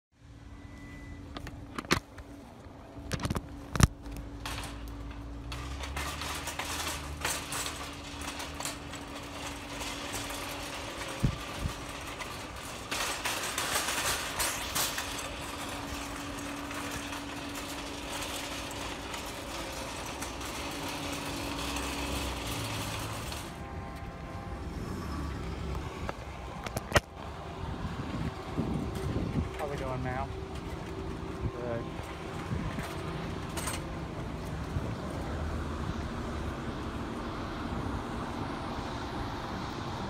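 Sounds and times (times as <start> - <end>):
mechanical hum: 0.2 - 40.0
wind rushing on microphone: 27.5 - 29.9, 32.3 - 33.0.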